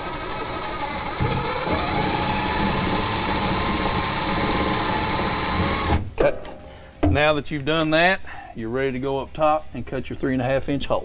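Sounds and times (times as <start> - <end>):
cordless drill whine: 0.0 - 6.0.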